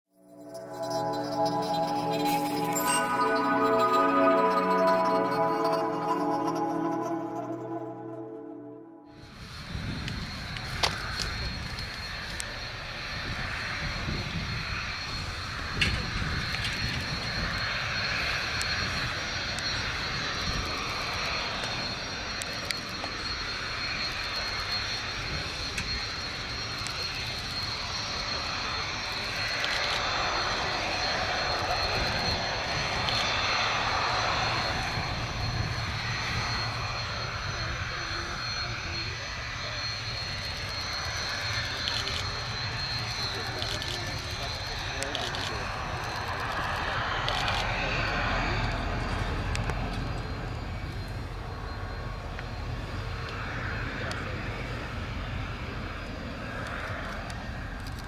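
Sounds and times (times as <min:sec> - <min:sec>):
jet engines running with whine: 0:00.1 - 0:58.0.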